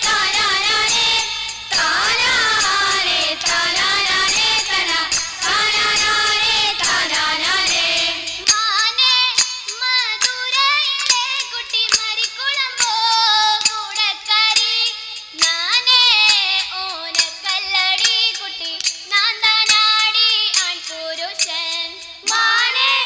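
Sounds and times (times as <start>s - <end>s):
hand claps: 0.0s - 7.8s
girls singing through microphones: 0.0s - 23.0s.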